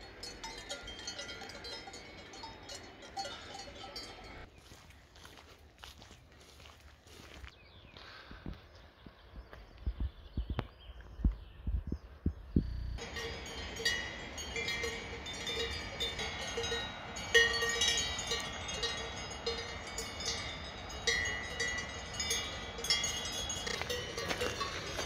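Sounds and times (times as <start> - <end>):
cowbells clanking: 0.0 - 4.5, 12.8 - 25.0.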